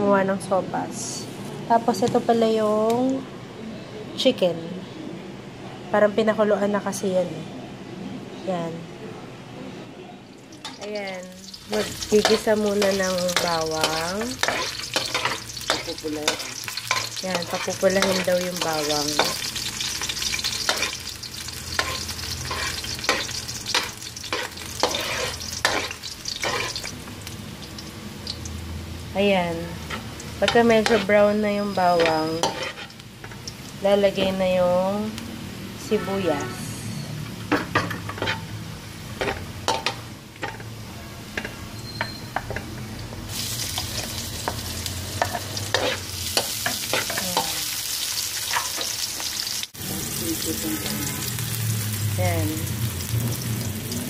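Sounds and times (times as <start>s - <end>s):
garlic sizzling in hot oil: 10.4s - 35.3s, 43.2s - 54.0s
metal spatula scraping a wok: 11.5s - 19.6s, 21.7s - 26.9s, 29.8s - 33.0s, 37.9s - 38.5s, 43.7s - 47.5s.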